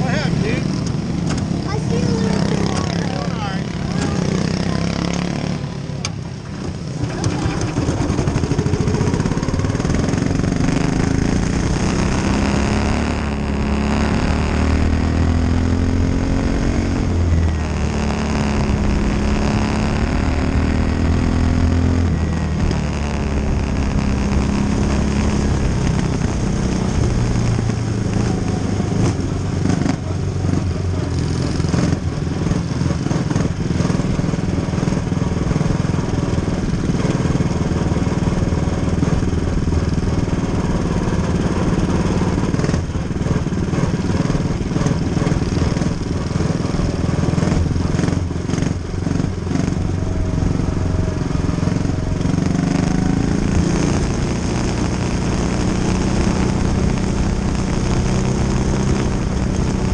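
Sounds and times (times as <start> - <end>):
small race car engine: 0.0 - 21.6.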